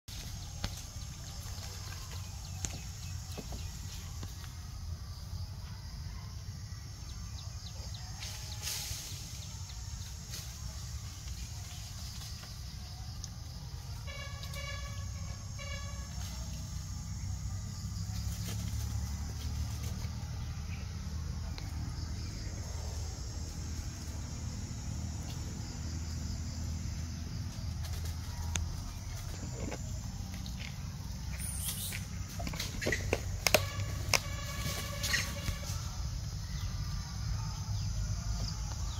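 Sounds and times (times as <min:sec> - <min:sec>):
insects buzzing: 0:00.1 - 0:38.9
low forest rumble: 0:00.1 - 0:38.9
faint high bird chirps: 0:31.2 - 0:38.9.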